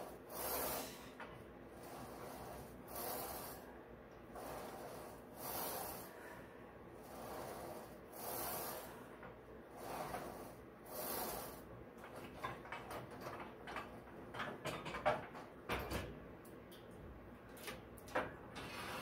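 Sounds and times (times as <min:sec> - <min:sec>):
forced breaths: 0:04.4 - 0:09.2.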